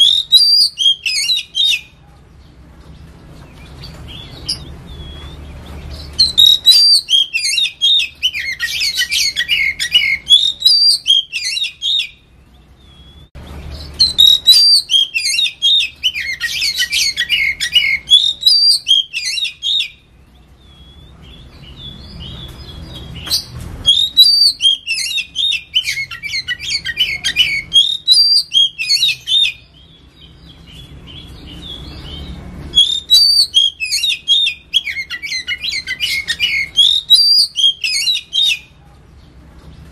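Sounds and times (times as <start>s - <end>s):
bird singing whistles: 0.0s - 1.9s, 4.1s - 12.2s, 13.9s - 20.0s, 20.6s - 30.0s, 30.8s - 38.7s.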